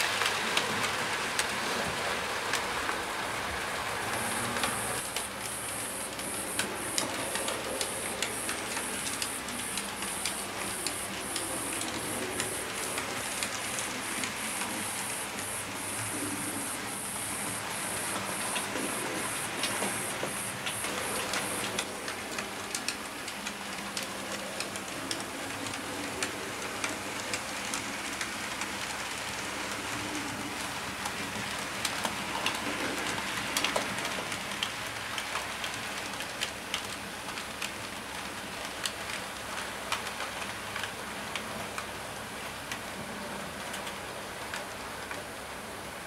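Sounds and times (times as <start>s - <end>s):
model train wheels rolling: 0.0s - 41.9s
wheels clicking over rail joints: 0.0s - 45.9s.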